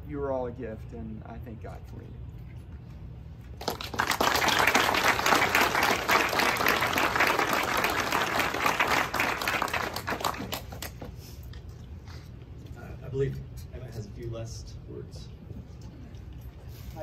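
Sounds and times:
small crowd applauding: 0:03.5 - 0:11.2.

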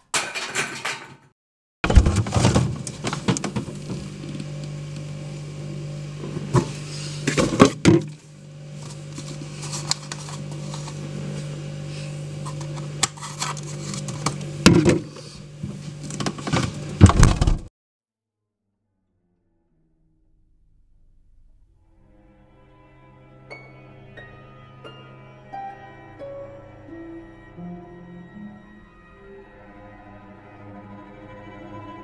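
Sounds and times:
steady low hum: 0:02.2 - 0:17.7.

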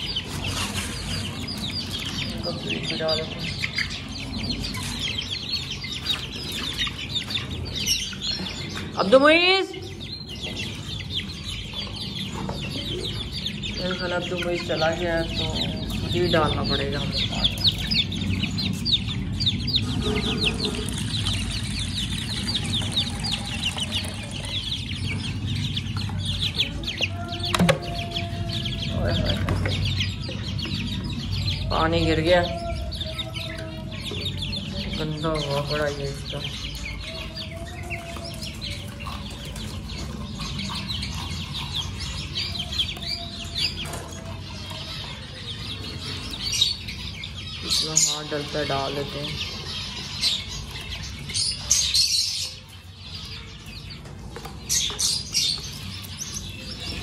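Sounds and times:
birds chirping: 0:00.0 - 0:57.0
young chickens peeping: 0:00.0 - 0:57.0.

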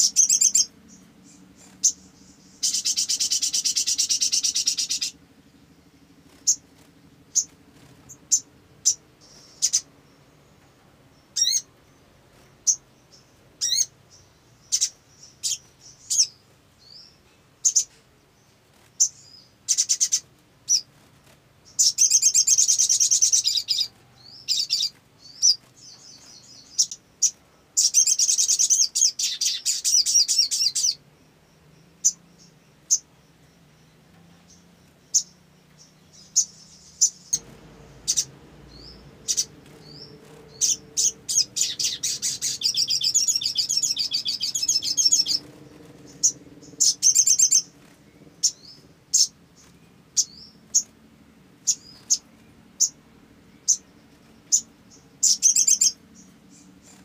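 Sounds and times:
bird chirping: 0:00.0 - 0:57.0
fast chattering bird song: 0:00.0 - 0:57.0.

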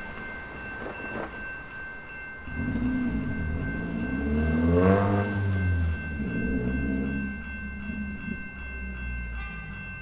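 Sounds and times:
electric train rumbling past: 0:00.0 - 0:10.0
level crossing bells ringing: 0:00.0 - 0:10.0.

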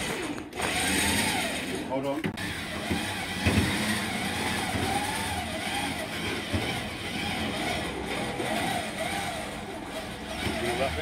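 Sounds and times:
truck engine running: 0:02.3 - 0:11.0.

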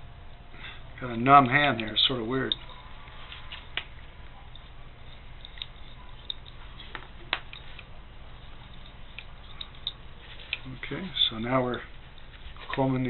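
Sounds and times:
steady low hum: 0:00.0 - 0:13.0
fingers untwisting wire rustles: 0:01.3 - 0:13.0.

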